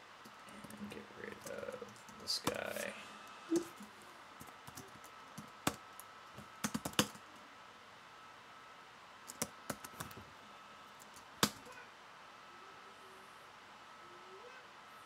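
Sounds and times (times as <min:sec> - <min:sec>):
computer keyboard typing: 0:04.4 - 0:07.2, 0:09.3 - 0:10.2.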